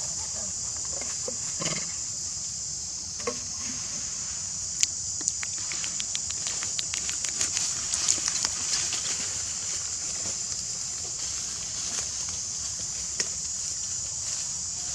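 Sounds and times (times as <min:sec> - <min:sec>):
high-pitched insect drone: 0:00.0 - 0:14.9
small sharp clicks: 0:04.8 - 0:08.6.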